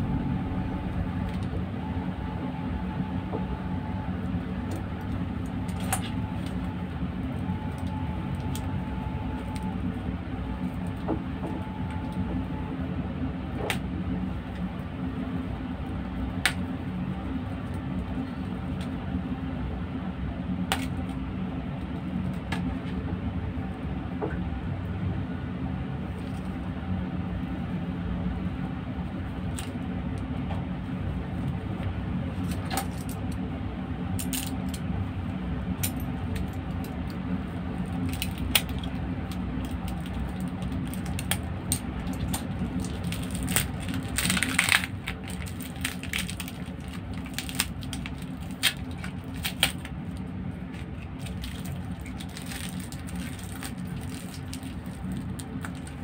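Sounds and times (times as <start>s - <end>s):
low background hum: 0.0s - 56.0s
cellophane crinkling: 39.6s - 56.0s.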